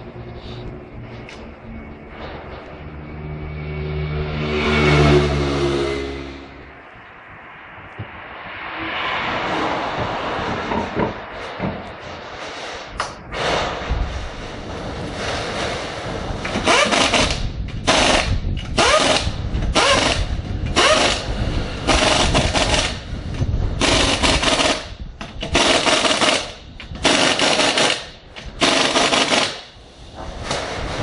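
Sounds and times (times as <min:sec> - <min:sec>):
pneumatic impact wrench rattling: 0:16.4 - 0:23.0, 0:23.8 - 0:29.8.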